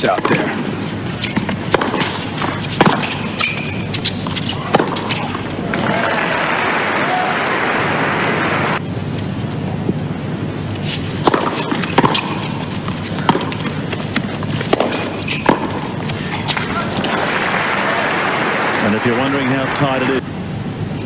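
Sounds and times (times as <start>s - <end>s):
racquets striking tennis ball: 0.0s - 6.0s, 10.9s - 17.4s
ball bouncing on hard court: 1.2s - 5.4s, 11.2s - 16.0s
crowd applause: 5.6s - 8.8s, 16.6s - 20.2s.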